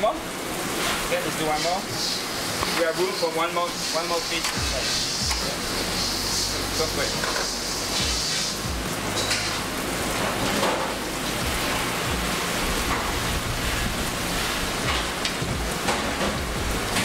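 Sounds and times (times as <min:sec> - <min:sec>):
fish sizzling in a pan: 0:00.0 - 0:17.0.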